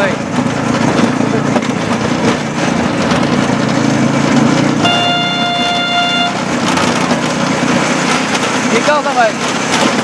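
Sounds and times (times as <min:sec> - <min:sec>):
high-pitched horn note: 0:04.8 - 0:06.4.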